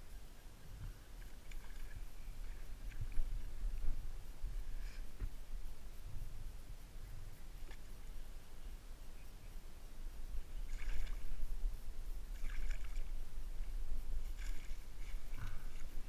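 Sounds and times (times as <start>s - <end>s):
steady low rumble: 0.0s - 16.0s
fish splashing in water: 10.7s - 11.4s, 12.3s - 13.1s.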